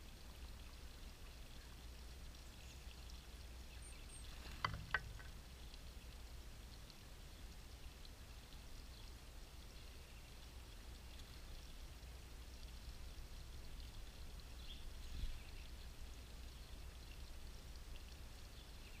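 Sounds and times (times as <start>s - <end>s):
small birds chirping: 2.3s - 5.3s, 14.5s - 17.3s.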